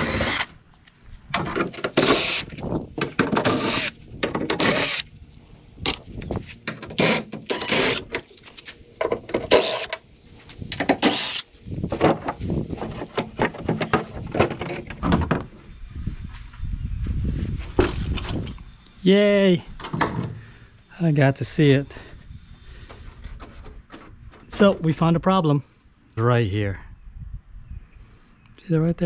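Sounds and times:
cordless drill driving out screws: 0.0 - 0.5, 1.7 - 2.6, 3.2 - 5.1, 6.9 - 8.2, 9.4 - 10.0, 10.7 - 11.5.

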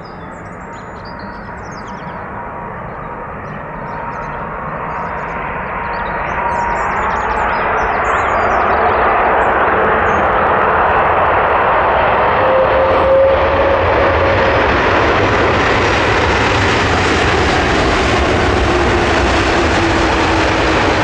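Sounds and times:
jet engines roaring: 0.0 - 21.0.

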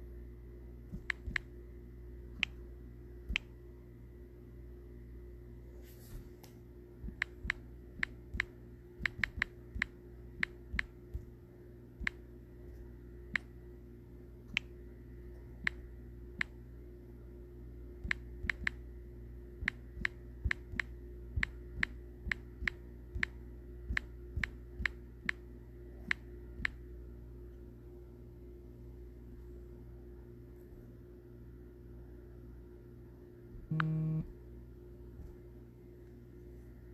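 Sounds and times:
low hum: 0.0 - 36.9
sharp clicks: 1.0 - 1.5, 3.3 - 3.5, 7.1 - 11.3, 12.0 - 12.2, 18.0 - 18.8.

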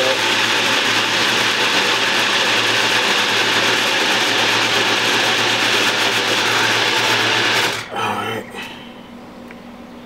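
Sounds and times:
blender motor running: 0.0 - 7.9.

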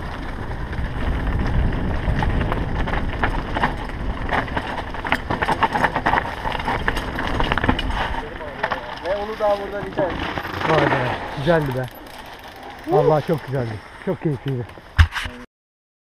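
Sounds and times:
wind buffeting microphone: 0.0 - 11.8
tyres running over loose stones: 0.0 - 13.7
chain and frame clattering: 5.2 - 13.6.

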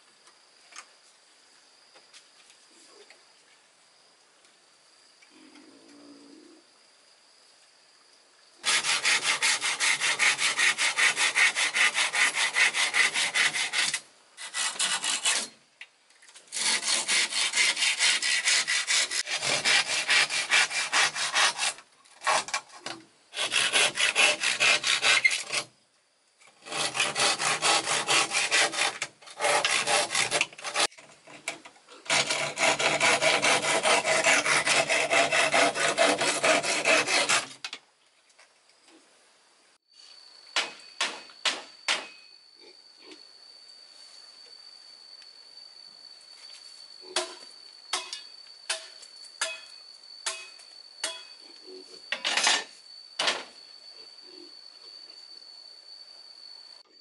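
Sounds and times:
wood being sawn: 8.6 - 15.6, 16.5 - 25.7, 26.6 - 31.0, 32.0 - 37.6.

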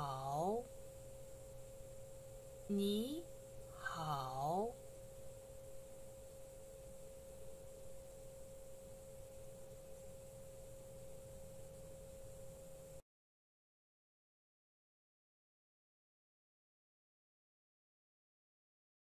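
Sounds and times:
faint steady whine: 0.0 - 13.0
low background noise: 0.0 - 13.0.

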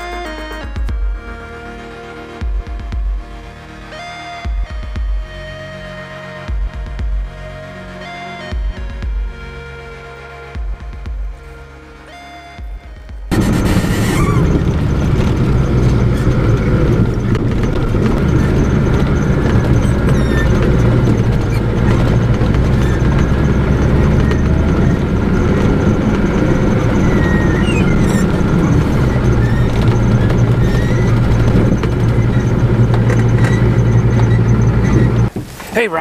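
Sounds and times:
truck engine drone: 0.0 - 36.0
tyre noise on gravel: 13.3 - 36.0.

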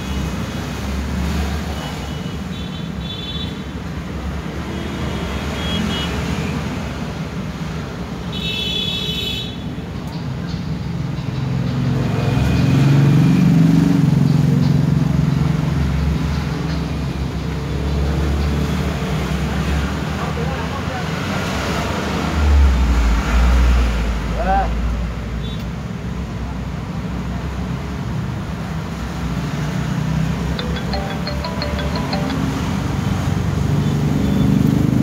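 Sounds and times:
phone electronic tones: 30.6 - 33.1.

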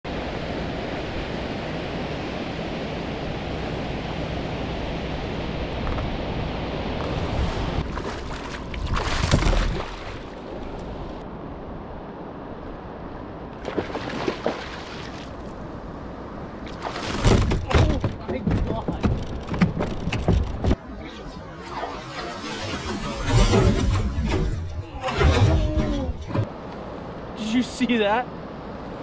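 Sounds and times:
wind and water rushing: 0.0 - 29.0
fish thrashing and splashing: 7.8 - 10.4, 16.7 - 17.9.

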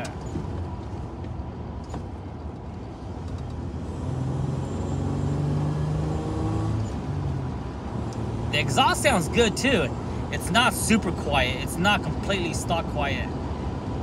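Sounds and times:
road noise: 0.0 - 14.0.

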